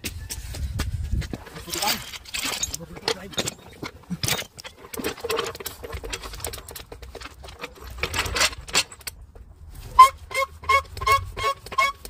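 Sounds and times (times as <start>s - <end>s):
floor jack clicking and rattling: 1.2s - 9.2s.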